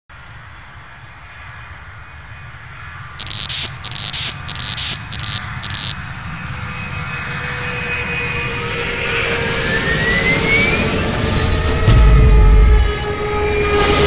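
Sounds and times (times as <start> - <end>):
static-like hiss bursts: 3.2 - 6.0.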